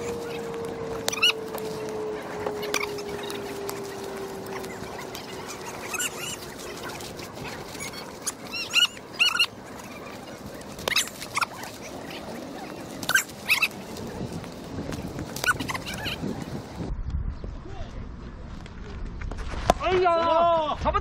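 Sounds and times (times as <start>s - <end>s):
high-pitched animal calls: 0.0s - 14.0s, 15.4s - 16.3s
outdoor background noise: 0.0s - 21.0s.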